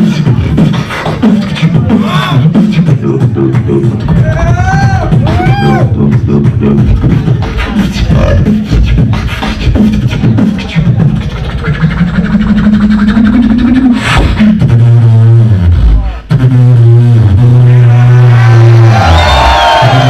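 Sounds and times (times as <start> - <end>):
beatboxing into microphone: 0.0 - 20.0
low droning bass voice: 1.9 - 7.2, 8.0 - 8.6.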